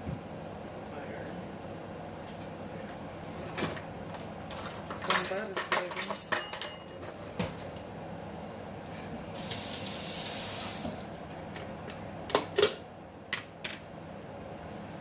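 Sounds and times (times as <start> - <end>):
tap water running: 9.3 - 11.7.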